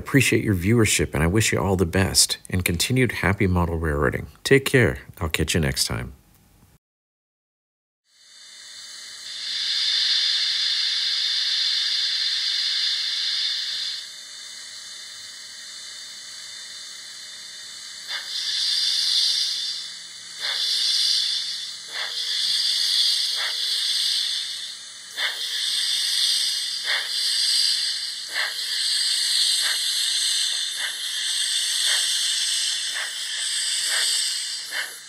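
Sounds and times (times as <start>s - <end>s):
steam hissing: 8.2s - 35.0s.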